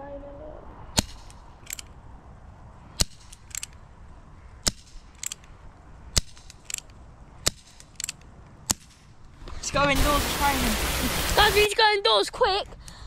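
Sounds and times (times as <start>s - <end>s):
air revolver shots: 1.0s - 1.8s, 3.0s - 3.7s, 6.1s - 9.0s
quiet revolver clicks: 1.0s - 2.0s, 3.0s - 3.8s, 4.6s - 9.0s.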